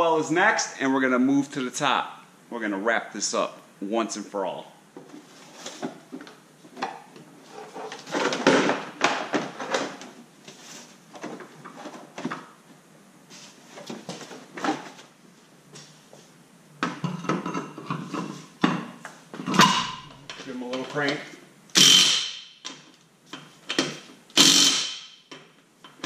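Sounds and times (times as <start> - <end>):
plastic scraping and rustling: 5.0 - 12.5.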